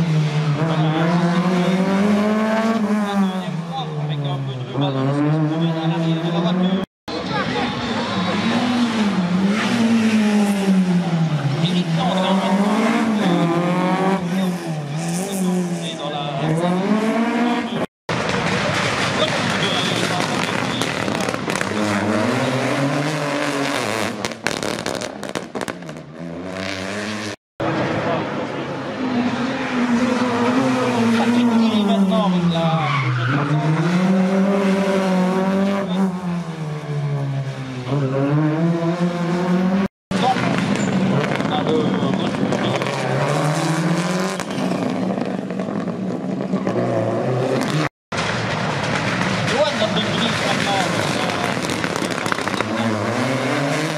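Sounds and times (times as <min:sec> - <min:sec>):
rally car engine accelerating: 0:00.0 - 0:06.8, 0:07.7 - 0:53.9
exhaust pops and bangs: 0:18.1 - 0:22.0, 0:24.0 - 0:26.1, 0:40.1 - 0:42.9, 0:47.6 - 0:53.0.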